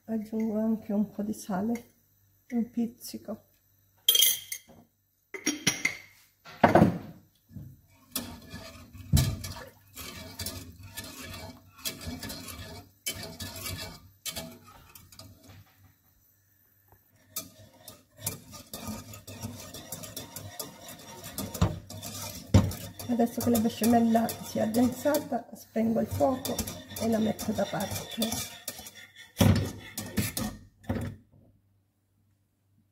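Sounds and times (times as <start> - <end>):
whisk scraping a saucepan: 7.8 - 15.9, 17.1 - 31.0.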